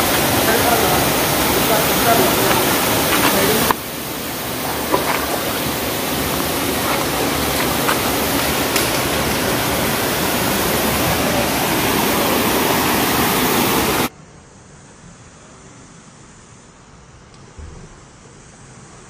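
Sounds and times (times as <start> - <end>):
river rushing over stones: 0.0 - 14.1.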